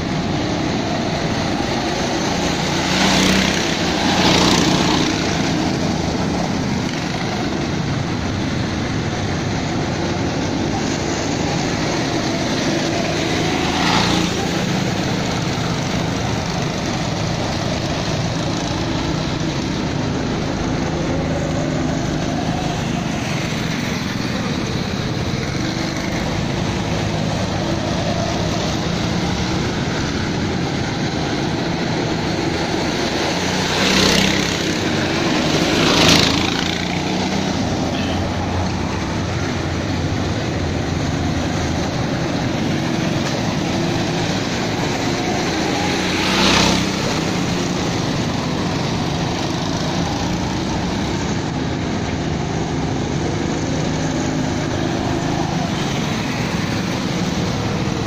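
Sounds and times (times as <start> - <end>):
go-kart engines droning: 0.0 - 58.0.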